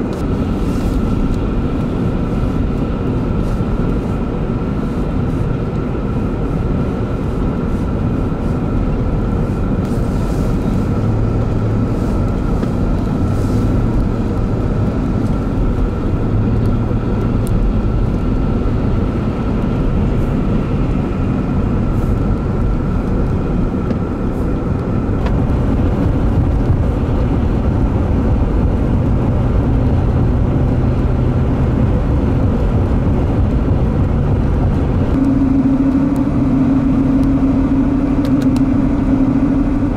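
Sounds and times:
car engine and tyre noise: 0.0s - 39.9s
thin steady hum: 32.9s - 39.9s.

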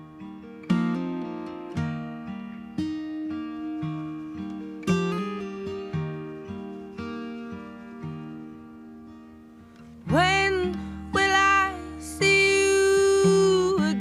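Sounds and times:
acoustic guitar picking: 0.0s - 14.0s
person singing with vibrato: 10.1s - 14.0s.

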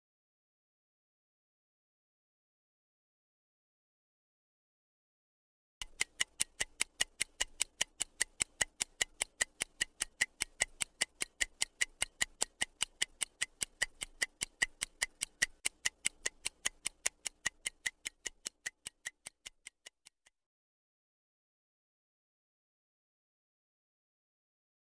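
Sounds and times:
stopwatch ticking: 5.8s - 20.3s.

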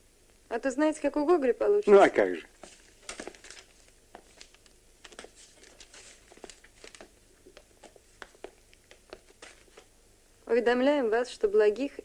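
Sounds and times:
faint rustling: 2.4s - 10.0s.

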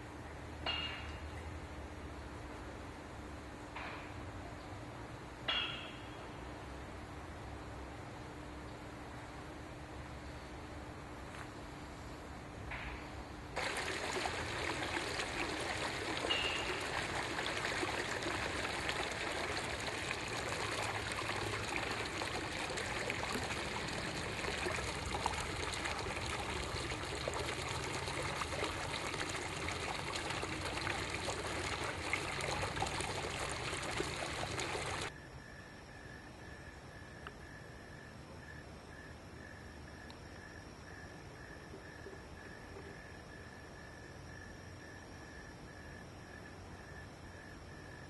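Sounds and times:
stream water rushing: 13.6s - 35.1s.

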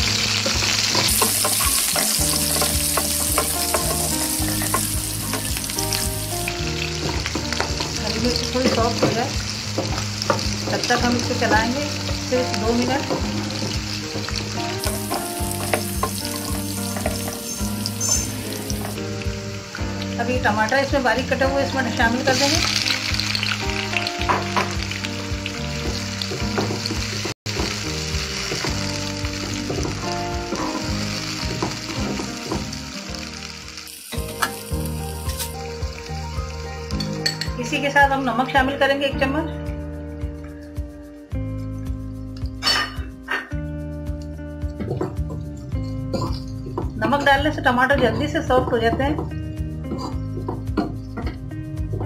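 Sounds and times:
chillies sizzling in hot oil: 0.0s - 52.0s.

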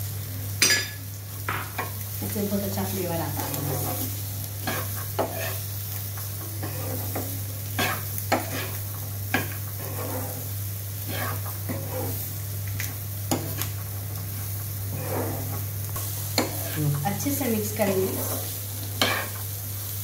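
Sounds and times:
light sizzle: 0.0s - 20.0s
metal spatula scraping frying pan: 3.4s - 5.6s, 6.2s - 12.3s, 14.9s - 17.1s, 17.8s - 19.4s.

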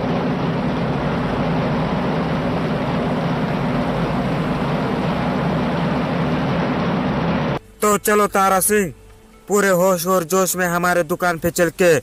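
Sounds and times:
low hum: 0.0s - 7.8s
loud steady rushing noise: 0.0s - 8.6s.

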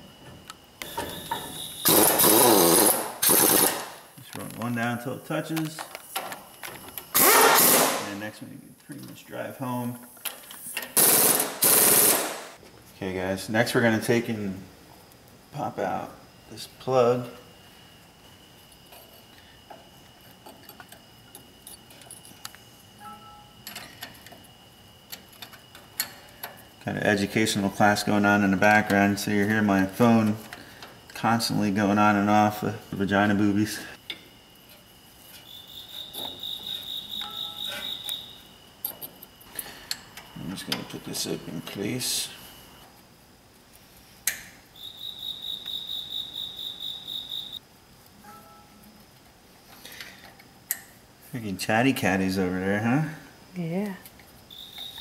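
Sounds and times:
faint high whine: 0.0s - 11.4s, 12.6s - 55.0s
phone alert chirping trill: 36.6s - 38.4s
sharp metallic click: 44.2s - 44.6s.

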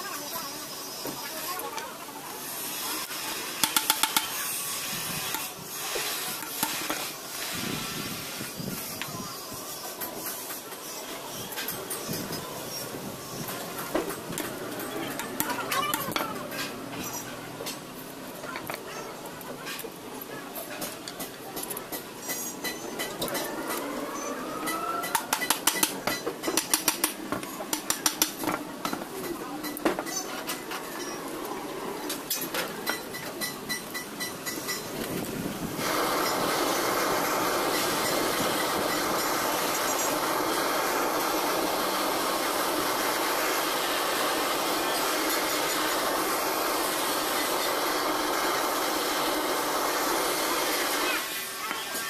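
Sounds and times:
blowtorch hissing: 0.0s - 15.7s, 34.4s - 52.0s
hammer striking metal: 3.6s - 4.4s.

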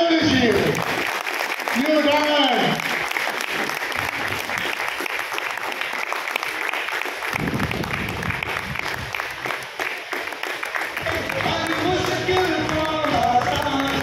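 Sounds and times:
audience applauding: 0.1s - 14.0s.

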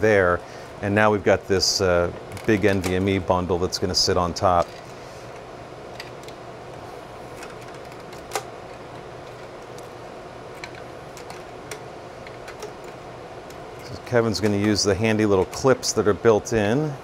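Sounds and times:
low room hum: 0.0s - 17.0s
cable handling noise: 2.0s - 3.3s, 4.3s - 16.1s.

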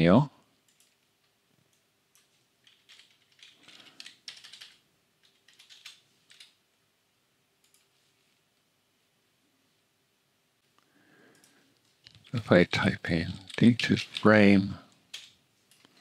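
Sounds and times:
typing on computer keyboard: 0.7s - 1.1s, 1.7s - 6.6s.

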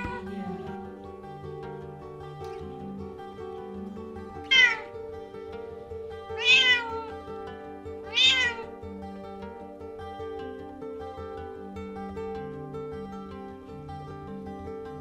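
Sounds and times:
cat meowing: 0.0s - 0.2s, 4.5s - 4.9s, 6.4s - 7.1s, 8.1s - 8.7s
background music: 0.0s - 15.0s.

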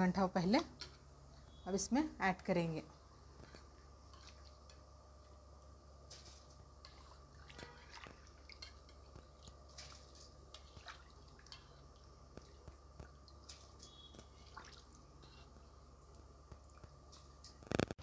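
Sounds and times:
low steady hum: 0.0s - 18.0s
ticks and pops of heating water: 6.5s - 18.0s.

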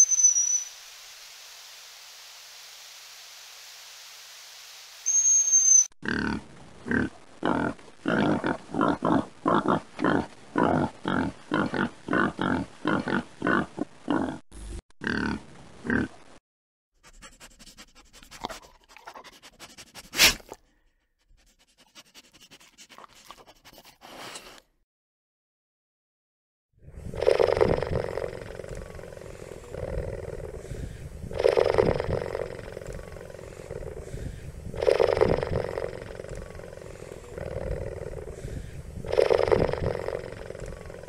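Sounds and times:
high whistle: 0.0s - 0.8s, 5.0s - 6.0s
hiss: 0.7s - 5.1s
pigs grunting: 6.0s - 14.4s, 27.2s - 41.0s.

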